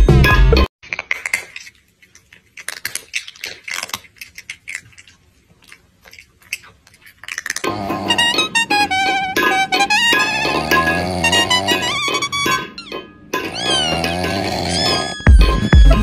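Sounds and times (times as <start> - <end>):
music: 0.0 - 0.7, 7.7 - 16.0
eating crunches and clicks: 0.8 - 12.6, 13.4 - 15.2.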